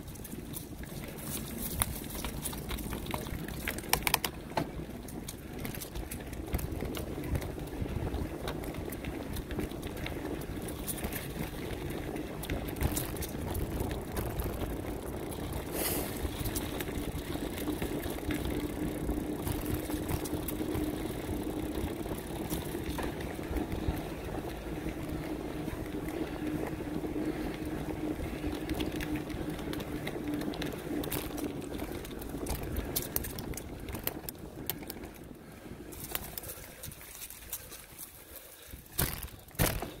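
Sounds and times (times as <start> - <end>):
wind rumble on microphone: 0.0 - 37.2
bicycle tyres rolling: 0.0 - 40.0
small clicks: 0.1 - 7.4.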